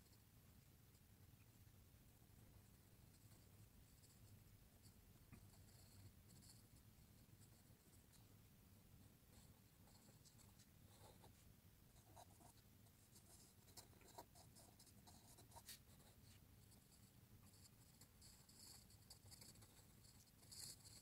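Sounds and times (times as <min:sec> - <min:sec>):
pencil scratching on paper: 0:05.3 - 0:08.3, 0:09.1 - 0:21.0.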